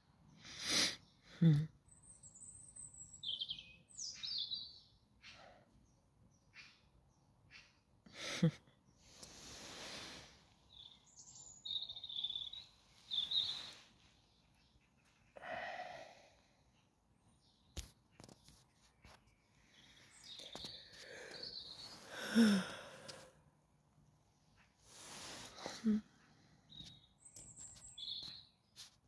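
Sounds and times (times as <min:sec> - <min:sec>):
small birds chirping: 0:00.0 - 0:29.0
soft breaths: 0:09.0 - 0:11.0, 0:12.8 - 0:17.0, 0:19.3 - 0:23.6, 0:24.5 - 0:26.8.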